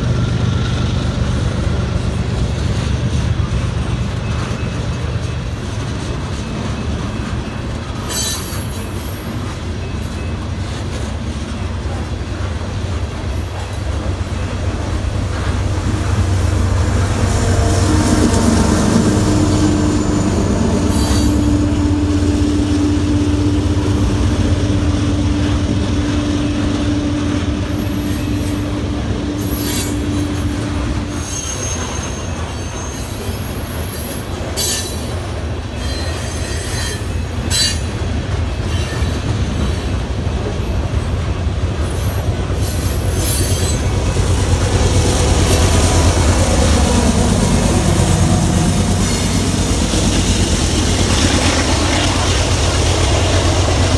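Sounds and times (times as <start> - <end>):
diesel locomotive engine hum: 0.0 - 53.9
freight cars rumbling over rails: 0.0 - 53.9
high wheel squeals: 17.6 - 21.8, 27.6 - 37.9, 38.6 - 40.1, 41.8 - 44.2.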